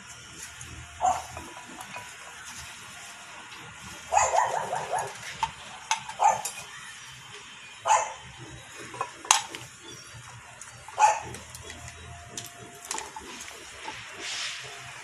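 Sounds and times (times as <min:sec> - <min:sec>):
dog barking: 0:01.0 - 0:01.4, 0:04.1 - 0:05.2, 0:06.1 - 0:06.7, 0:07.8 - 0:08.3, 0:10.9 - 0:11.5.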